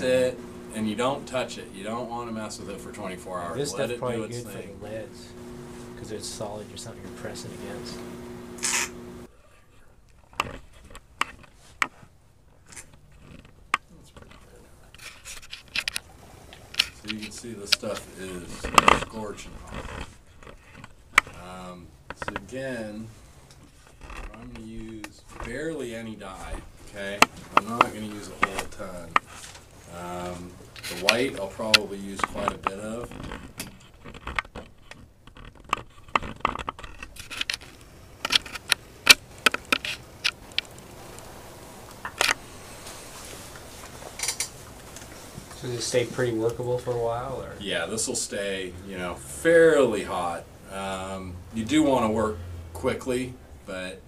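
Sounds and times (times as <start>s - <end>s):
soft rustling: 0.0s - 48.6s
sharp clicks and knocks: 30.7s - 42.4s.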